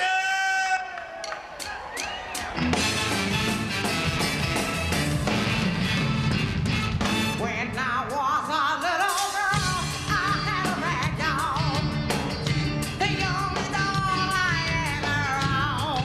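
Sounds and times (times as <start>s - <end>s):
rock and soul band: 1.7s - 16.0s
woman singing with vibrato: 7.4s - 11.9s, 13.0s - 16.0s.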